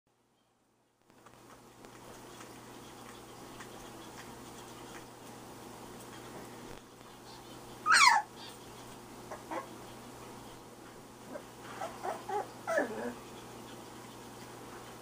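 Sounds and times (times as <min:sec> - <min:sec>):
faint puppy squeaks: 0:07.8 - 0:08.3, 0:11.7 - 0:13.3
puppy yelping: 0:07.8 - 0:08.3, 0:09.3 - 0:09.7, 0:11.3 - 0:13.2.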